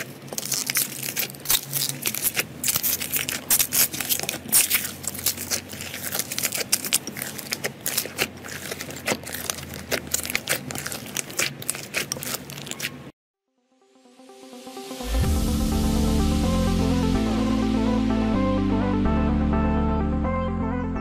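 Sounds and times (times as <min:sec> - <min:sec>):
slime crackling and popping: 0:00.0 - 0:13.1.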